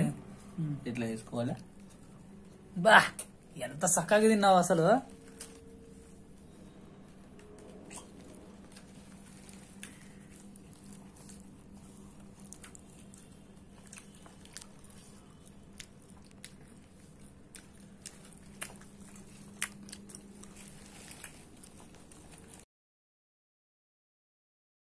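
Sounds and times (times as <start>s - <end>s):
steady low hum: 0.0s - 22.6s
person chewing: 7.3s - 22.6s.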